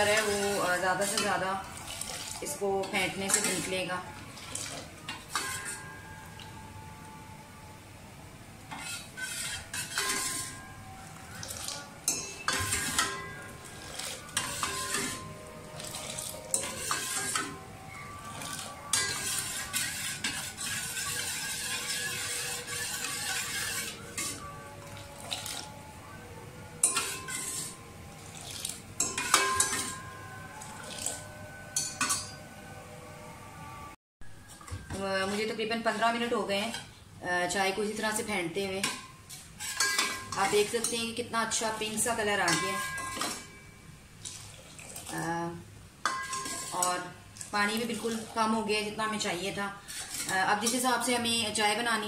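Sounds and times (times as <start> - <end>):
liquid sloshing: 0.0 - 6.5, 11.2 - 25.8, 26.8 - 31.3, 44.2 - 45.3, 46.0 - 49.0
ladle clanking against a pot: 4.4 - 6.5, 8.7 - 10.7, 11.4 - 17.6, 18.3 - 25.7, 26.8 - 27.7, 28.4 - 32.4, 38.8 - 41.1, 42.4 - 43.6, 46.0 - 48.1.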